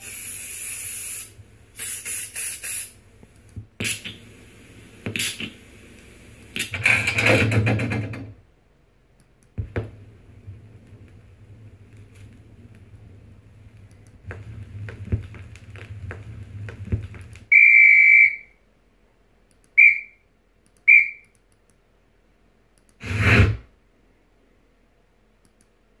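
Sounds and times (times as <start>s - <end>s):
high whistle tone: 0.0s - 6.6s, 17.5s - 18.6s, 19.8s - 20.2s, 20.9s - 21.3s
low hum: 0.0s - 6.6s
burst of noise: 0.0s - 6.8s.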